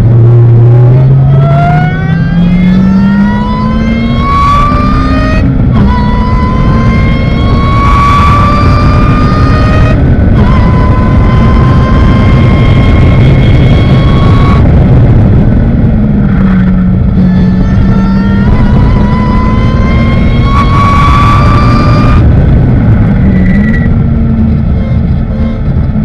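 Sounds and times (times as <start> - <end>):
heavy wind rush: 0.0 - 26.0
racing car engine: 0.0 - 26.0.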